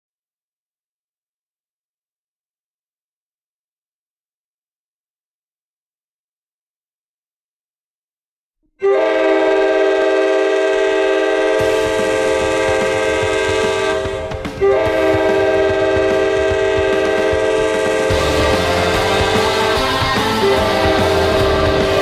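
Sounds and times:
multi-chime air horn blasts: 8.8s - 22.0s.

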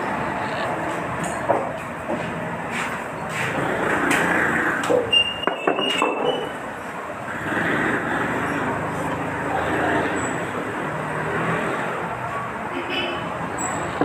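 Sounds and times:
murmur of voices: 0.0s - 1.5s, 8.7s - 11.0s.

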